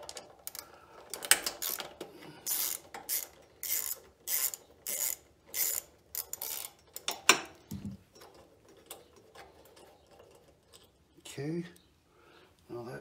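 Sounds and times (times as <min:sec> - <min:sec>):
ratchet wrench ratcheting: 0:00.0 - 0:07.5.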